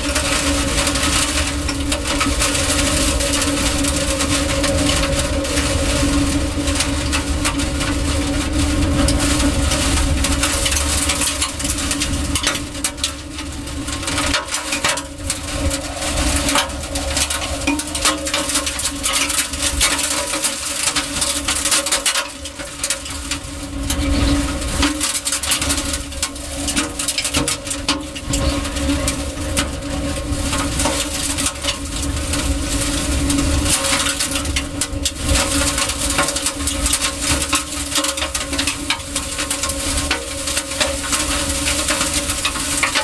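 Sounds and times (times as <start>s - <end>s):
steady low hum: 0.0s - 21.6s, 22.4s - 33.7s
wind buffeting microphone: 0.0s - 21.7s, 22.6s - 39.2s.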